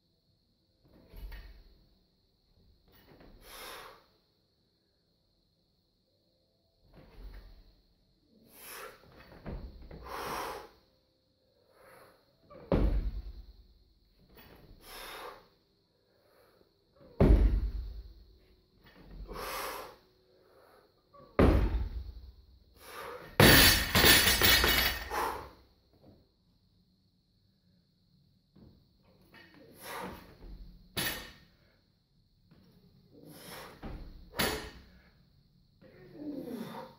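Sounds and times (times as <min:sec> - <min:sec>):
barbell heavy thuds: 0:17.2 - 0:18.0, 0:21.4 - 0:22.1, 0:23.4 - 0:25.3
barbell plates clattering on floor: 0:23.4 - 0:25.2
hard breathing: 0:24.3 - 0:25.8.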